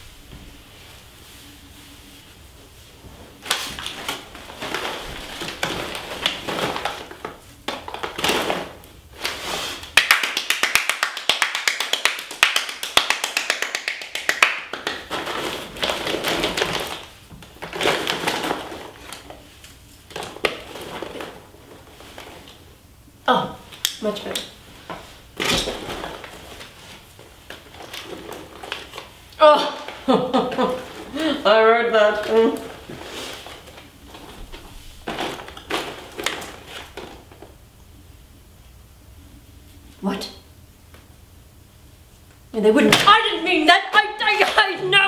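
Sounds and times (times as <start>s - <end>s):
people clapping hands: 9.9s - 15.2s.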